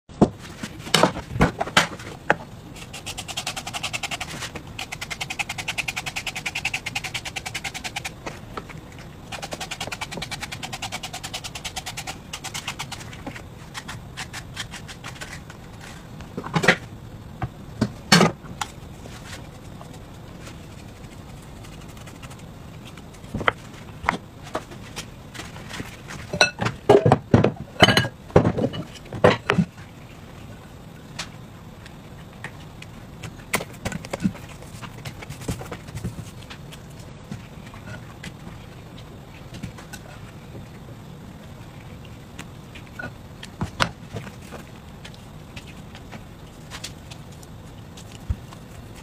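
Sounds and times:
spiral slicer crackling on cucumber: 0:02.8 - 0:08.2.

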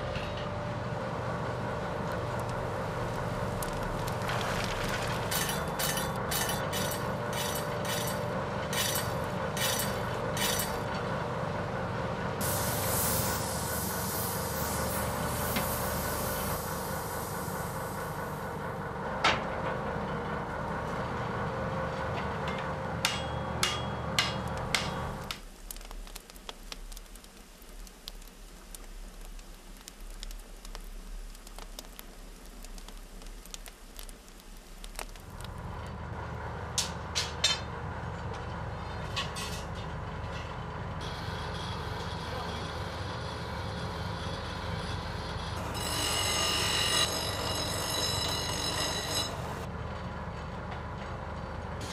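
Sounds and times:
forge fire rumbling: 0:00.6 - 0:39.1
hammer striking metal: 0:05.3 - 0:10.9, 0:23.0 - 0:25.3.

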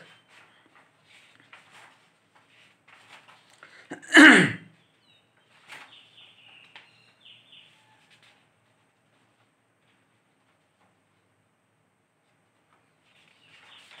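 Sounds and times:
man sneezing: 0:03.9 - 0:04.6.

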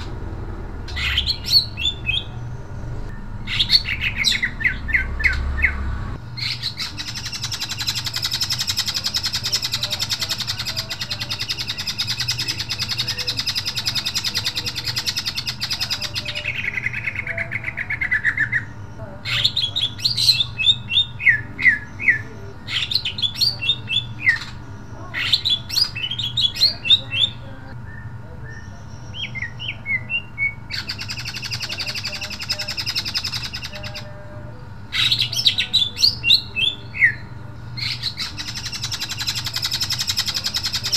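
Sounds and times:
bird singing rattling trill: 0:00.0 - 0:40.9.

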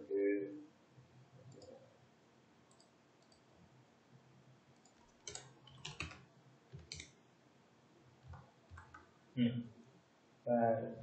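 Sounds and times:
keyboard and mouse clicks: 0:02.7 - 0:03.5, 0:04.8 - 0:07.2, 0:08.2 - 0:09.1.

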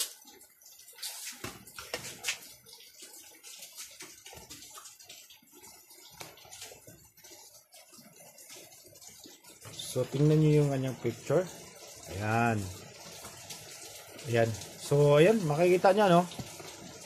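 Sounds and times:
rain falling and dripping: 0:00.0 - 0:17.0.

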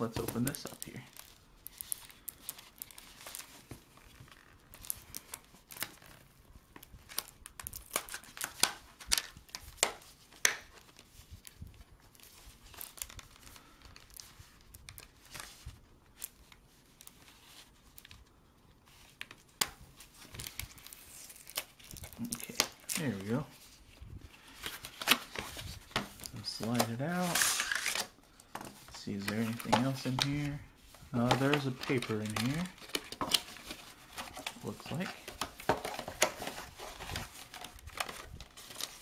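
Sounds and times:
plastic crinkling: 0:00.0 - 0:18.3, 0:18.9 - 0:39.0
card scraping: 0:24.4 - 0:39.0.

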